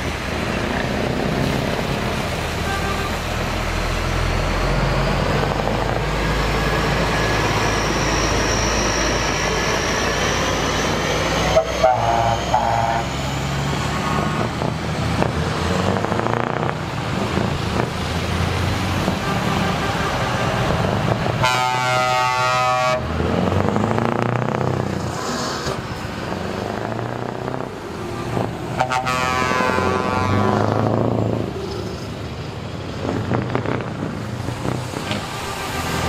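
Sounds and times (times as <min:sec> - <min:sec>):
passing car traffic: 0:00.0 - 0:36.0
trucks with loud open exhausts: 0:00.0 - 0:36.0
truck air horn blast: 0:02.5 - 0:03.5, 0:11.4 - 0:13.1, 0:19.0 - 0:23.1, 0:28.0 - 0:30.8, 0:35.2 - 0:36.0.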